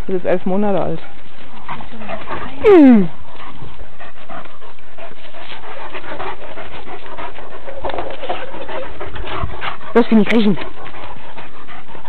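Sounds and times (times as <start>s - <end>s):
dogs panting: 0.0s - 12.0s
dogs scuffling: 0.2s - 12.0s
dog throaty vocal sounds: 2.0s - 3.1s.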